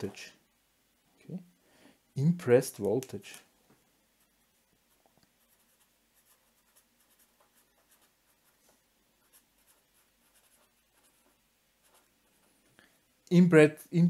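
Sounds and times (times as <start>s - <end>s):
pen scratching on paper: 5.4s - 8.6s, 9.2s - 12.5s.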